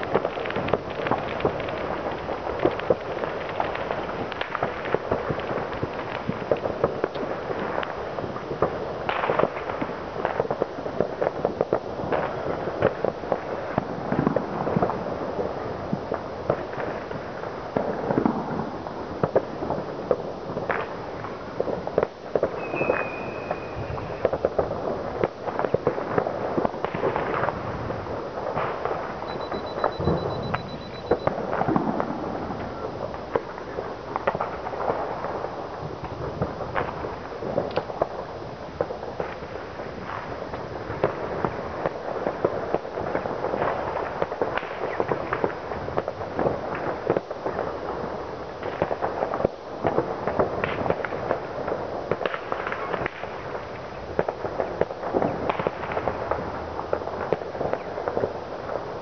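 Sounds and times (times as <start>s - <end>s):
fireworks crackling and banging: 0.0s - 59.0s
firework whistle: 22.5s - 24.4s, 29.2s - 31.8s.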